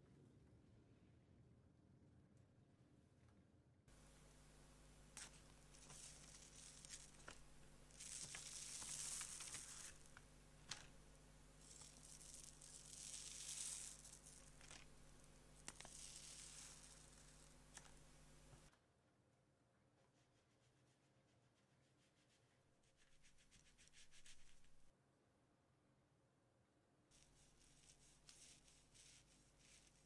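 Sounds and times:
baking paper rustling and tearing: 5.2s - 10.9s, 11.6s - 15.0s, 15.6s - 18.0s, 27.2s - 30.0s
small paper crackles: 5.2s - 11.0s, 11.6s - 18.7s, 27.2s - 30.0s.

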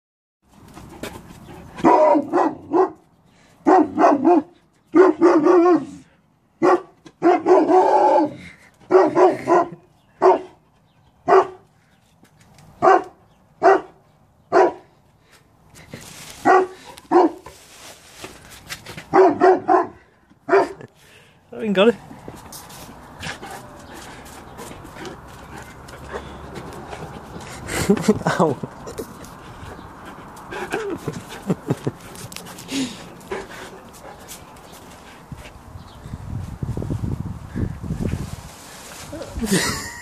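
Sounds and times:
dog barking: 1.8s - 3.0s, 3.6s - 6.0s, 6.6s - 10.6s, 11.3s - 11.6s, 12.8s - 14.8s, 16.4s - 17.5s, 19.1s - 20.8s.

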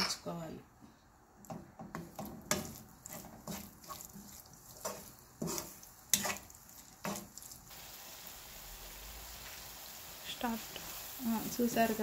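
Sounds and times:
wooden spatula scraping a pan: 1.9s - 7.7s.

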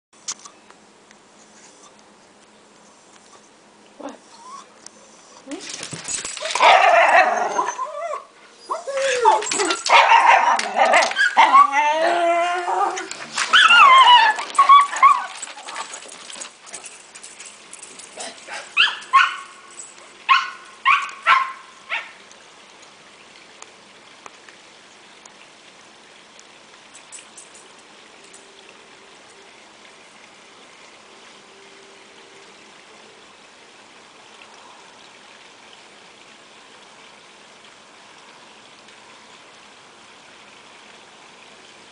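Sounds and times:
faint outdoor hiss: 0.2s - 41.9s
dogs whining and yipping: 4.1s - 22.1s
dog barks: 6.6s - 7.4s, 9.8s - 11.7s, 20.3s - 22.2s.

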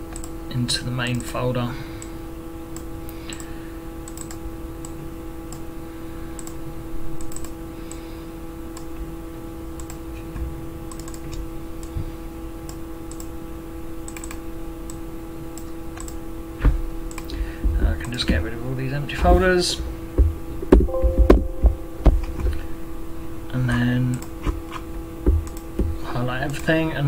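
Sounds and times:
steady hum: 0.0s - 27.0s
computer mouse clicks: 0.1s - 0.3s, 4.1s - 5.6s, 6.4s - 6.6s, 7.2s - 7.6s, 9.8s - 10.0s, 10.9s - 12.0s, 12.7s - 13.3s, 14.1s - 15.0s, 15.6s - 16.2s, 17.1s - 17.3s.

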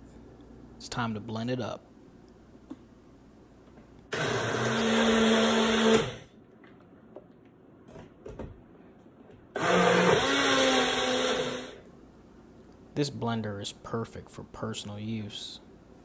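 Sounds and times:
blender motor running: 4.1s - 6.3s, 9.6s - 11.8s.

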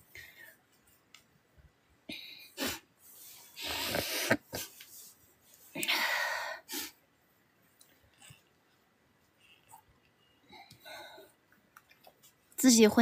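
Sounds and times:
woman sniffling while crying: 2.1s - 4.8s, 5.8s - 7.0s.

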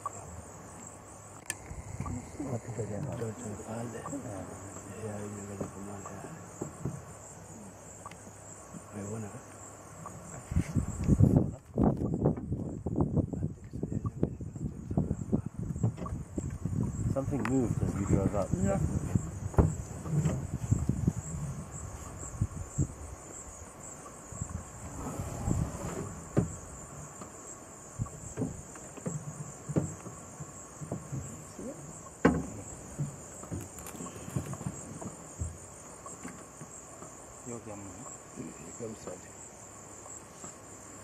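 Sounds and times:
shrill insect chorus: 0.0s - 41.0s
soft knocks and thumps: 4.7s - 7.1s, 15.0s - 17.6s, 19.0s - 21.5s, 28.0s - 31.4s, 32.2s - 37.2s.

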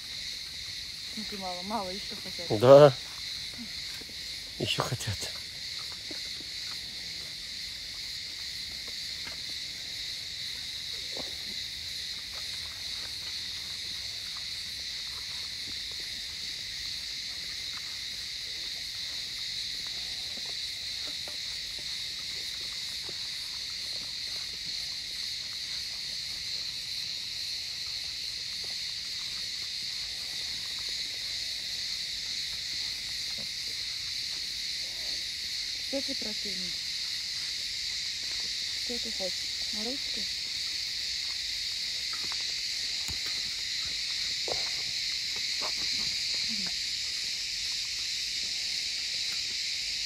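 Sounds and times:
insect chorus drone: 0.0s - 50.0s.

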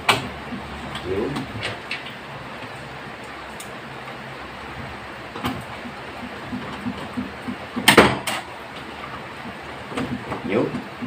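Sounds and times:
knock on air conditioner: 5.4s - 8.4s
loud rattle of panel: 5.4s - 11.0s.

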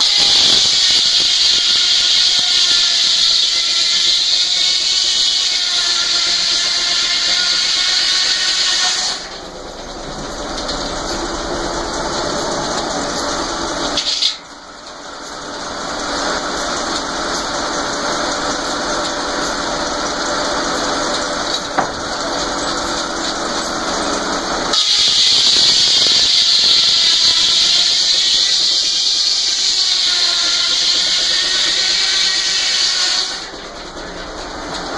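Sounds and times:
saw blade cutting log: 0.0s - 9.3s, 24.8s - 33.5s.

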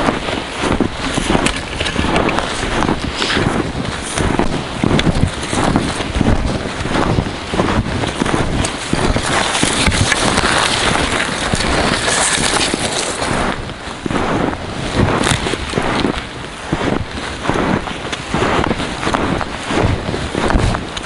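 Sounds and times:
footsteps crunching in snow: 0.0s - 21.0s
wind buffeting microphone: 0.0s - 21.0s.

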